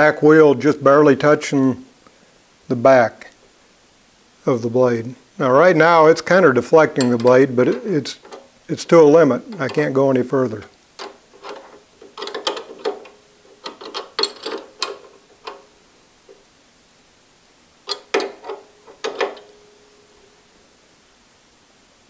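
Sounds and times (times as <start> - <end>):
ratcheting wrench clicking: 11.0 - 15.7, 17.9 - 19.5.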